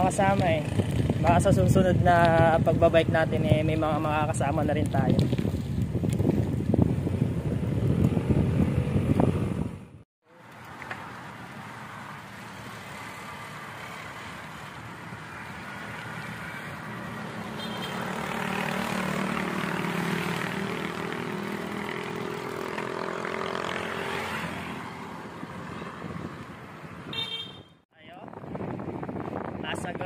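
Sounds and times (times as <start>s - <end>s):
wind and road noise: 0.0s - 30.0s
motorcycle engine passing: 12.5s - 26.2s.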